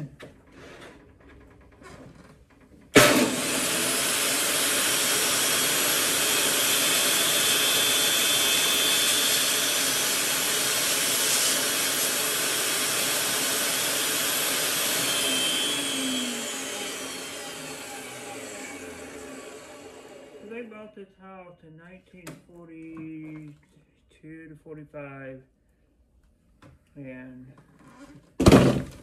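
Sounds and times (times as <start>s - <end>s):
saw cutting wood: 3.0s - 20.8s
saw winding down: 3.0s - 20.8s
table saw running: 3.0s - 20.9s.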